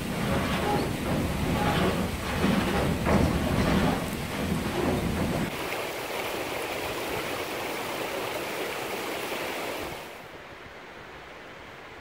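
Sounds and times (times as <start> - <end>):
sawmill low rumble: 0.0 - 5.6
flowing water rushing: 0.0 - 12.0.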